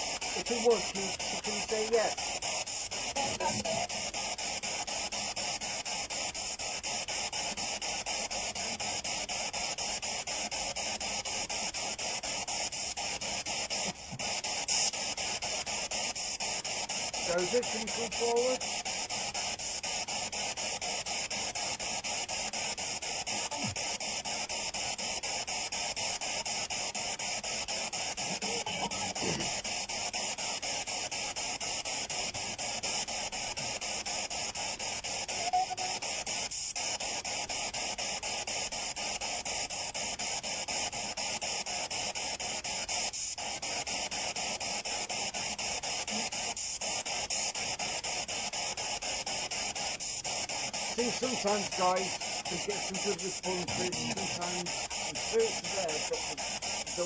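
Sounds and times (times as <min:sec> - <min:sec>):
faint radio fragments: 0:00.0 - 0:02.2, 0:17.2 - 0:18.6, 0:51.0 - 0:57.0
radio static chopped rapidly: 0:00.0 - 0:57.0.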